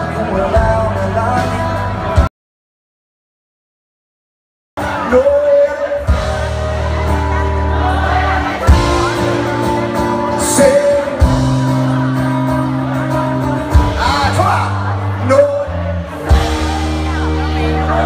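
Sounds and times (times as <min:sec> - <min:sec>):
live band music: 0:00.0 - 0:02.3, 0:04.8 - 0:18.0
sustained bass notes: 0:00.0 - 0:02.3, 0:04.8 - 0:18.0.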